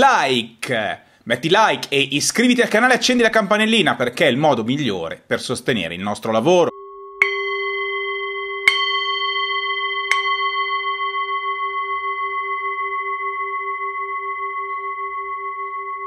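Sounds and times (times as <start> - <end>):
bell-like chime ringing: 6.7 - 16.0.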